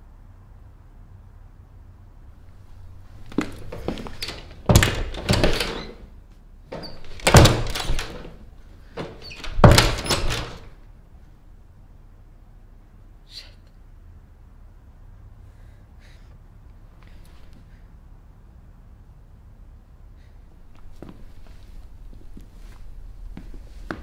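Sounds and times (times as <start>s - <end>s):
closet door banging: 2.8s - 6.1s, 6.7s - 10.8s.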